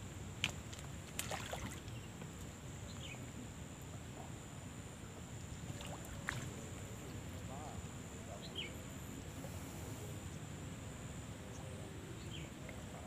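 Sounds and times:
small water splashes: 0:00.4 - 0:02.1, 0:05.6 - 0:06.9
water sloshing and lapping: 0:00.4 - 0:02.1, 0:05.5 - 0:07.4.

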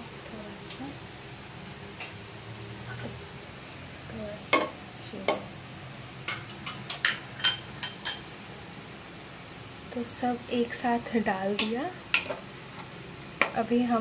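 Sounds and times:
metal spoon clinking on cookware: 0:06.3 - 0:08.3.

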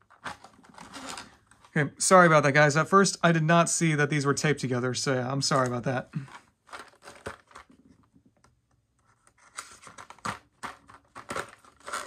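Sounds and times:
plastic packaging scratches and clicks: 0:00.0 - 0:01.8, 0:05.5 - 0:08.1, 0:09.0 - 0:12.0.

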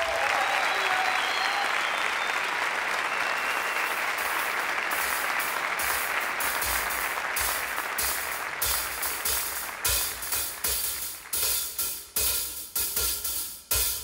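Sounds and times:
audience applause: 0:00.0 - 0:11.8
drum kit playing: 0:03.6 - 0:14.0.

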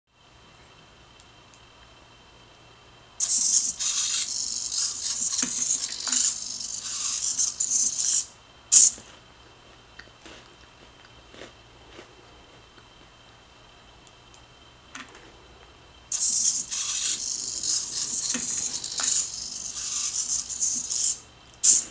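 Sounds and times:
servos buzzing and whirring: 0:03.2 - 0:09.0, 0:16.1 - 0:21.9.

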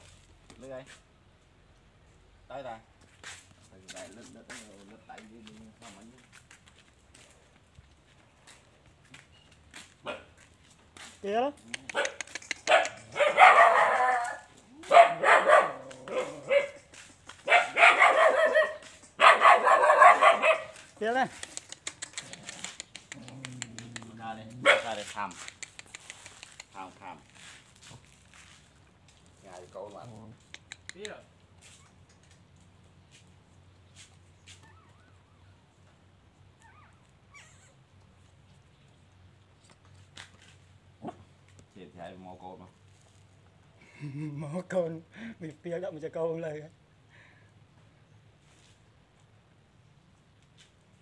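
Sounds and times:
dog barking: 0:10.0 - 0:10.4, 0:11.9 - 0:16.8, 0:17.4 - 0:20.8, 0:24.6 - 0:25.1
dog chewing and licking: 0:21.3 - 0:24.6.

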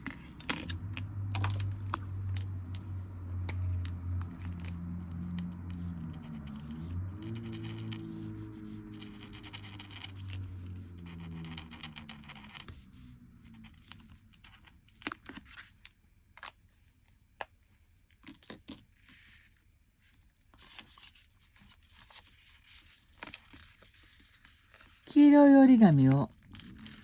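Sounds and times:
marker dabbing on paper: 0:05.4 - 0:13.1
paper rustling: 0:19.0 - 0:25.1.

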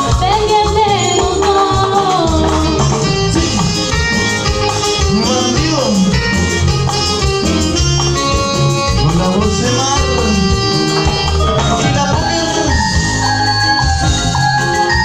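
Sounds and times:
live band playing: 0:00.0 - 0:15.0
person singing: 0:05.0 - 0:06.6, 0:08.9 - 0:13.2.

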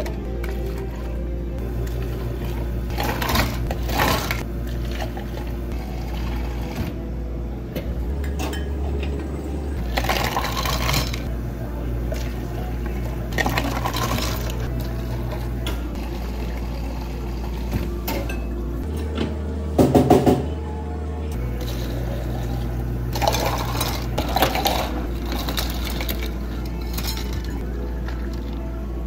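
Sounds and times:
steady low hum: 0:00.0 - 0:29.0
water pouring over ice: 0:09.8 - 0:11.3, 0:13.3 - 0:14.7, 0:21.5 - 0:28.6
ice crackling: 0:21.4 - 0:28.6.

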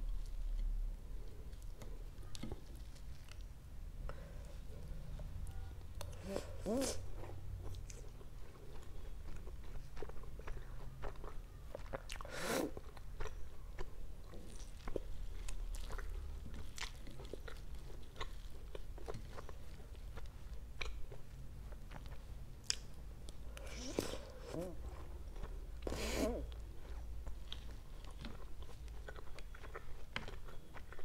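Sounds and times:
wet chewing and mouth smacks: 0:07.2 - 0:31.0.

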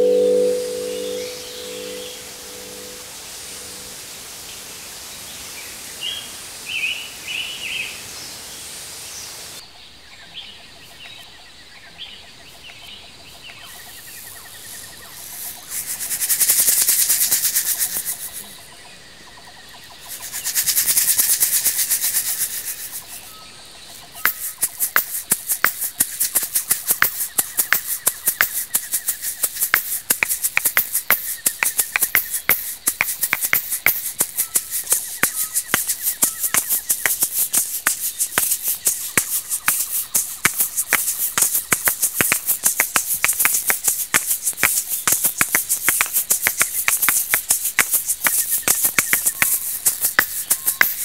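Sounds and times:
gourd shakers clacking: 0:00.0 - 0:04.0, 0:13.5 - 0:51.0
shaker filling rattling: 0:00.0 - 0:04.0, 0:13.7 - 0:18.9, 0:19.8 - 0:51.0.

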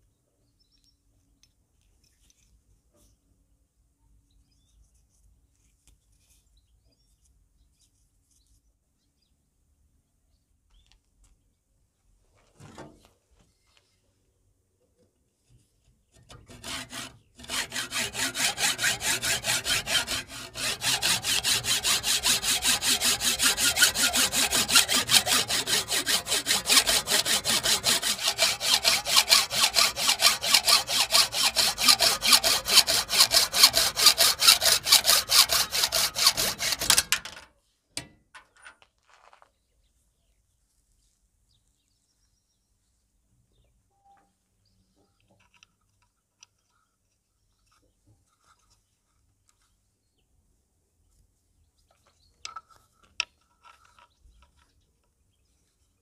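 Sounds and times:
hacksaw cutting brass: 0:16.2 - 0:37.4.

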